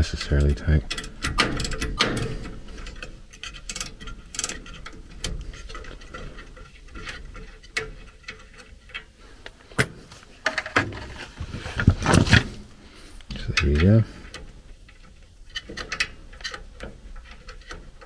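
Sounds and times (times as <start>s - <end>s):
metal tools clicking and tapping: 0.0s - 9.1s, 13.3s - 18.0s.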